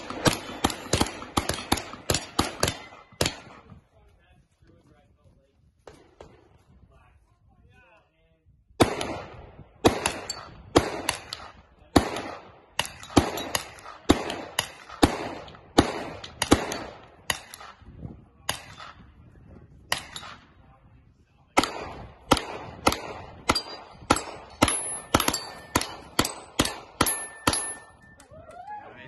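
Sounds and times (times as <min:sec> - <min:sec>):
gunshots: 0:00.0 - 0:03.8, 0:08.8 - 0:17.8, 0:21.5 - 0:27.9
steel targets ringing: 0:27.0 - 0:28.1.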